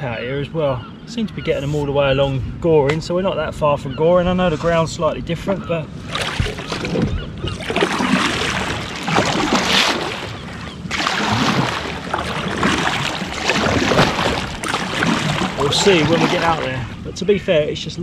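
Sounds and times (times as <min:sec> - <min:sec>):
kayak paddle splashing in water: 0:06.1 - 0:17.0.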